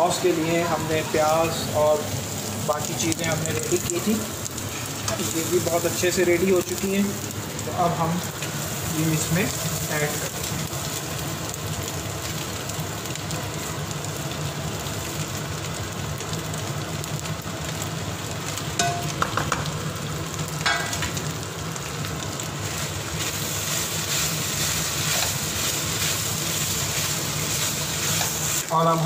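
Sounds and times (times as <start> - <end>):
meat sizzling in a wok: 0.0 - 29.0
utensil knocking on pan: 18.8 - 19.7.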